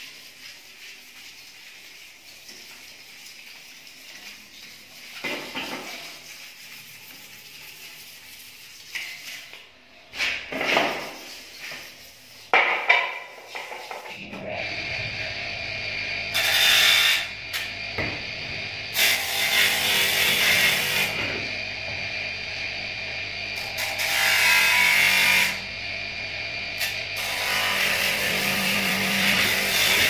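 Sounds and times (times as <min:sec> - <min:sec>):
hand sanding metal: 0:00.0 - 0:09.5, 0:10.2 - 0:12.6
bench polishing motor running: 0:14.2 - 0:30.0.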